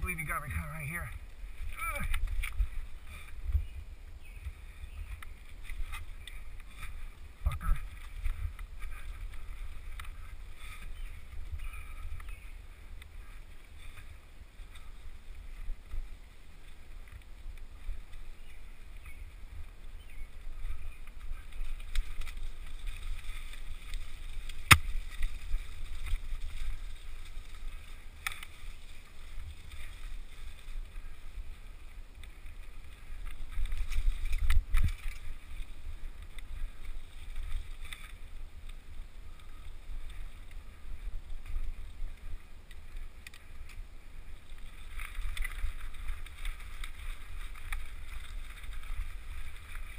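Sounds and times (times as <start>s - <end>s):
bike rattling: 0.0s - 49.9s
wind rumble on microphone: 0.0s - 49.9s.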